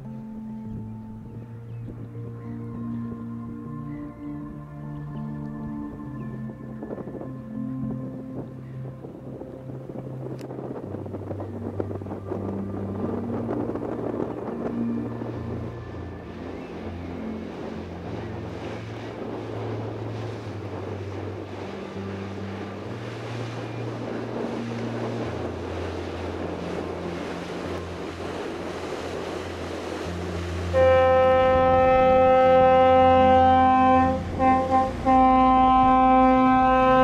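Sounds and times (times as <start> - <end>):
soft background music: 0.0 - 37.0
wind on microphone: 0.0 - 37.0
bow wave rushing and splashing: 10.1 - 37.0.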